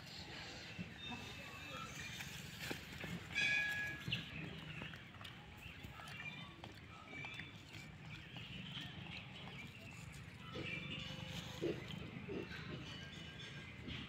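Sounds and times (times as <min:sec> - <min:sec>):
animal calls and chirps: 0:03.8 - 0:14.0.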